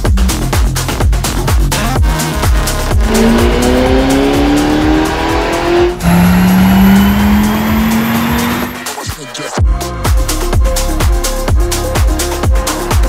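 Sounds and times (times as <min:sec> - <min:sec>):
background music with steady beat: 0:00.0 - 0:13.0
car engine at full throttle: 0:02.3 - 0:09.0.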